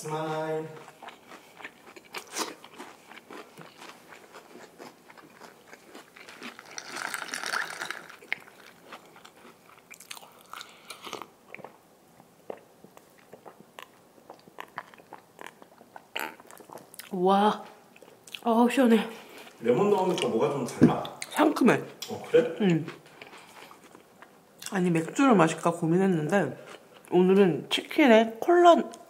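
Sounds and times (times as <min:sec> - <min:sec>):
chewing crunchy food: 0:00.8 - 0:18.5, 0:22.9 - 0:24.8, 0:26.5 - 0:27.2.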